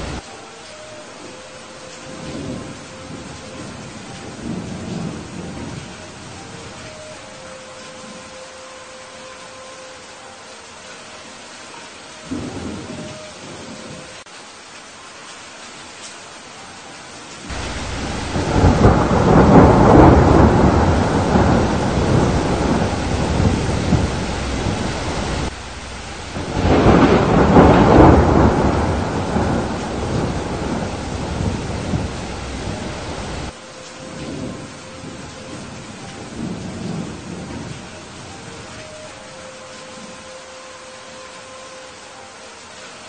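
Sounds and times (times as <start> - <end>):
thunder rolling: 0.0 - 0.2, 17.5 - 37.8
steady rain: 0.0 - 43.0.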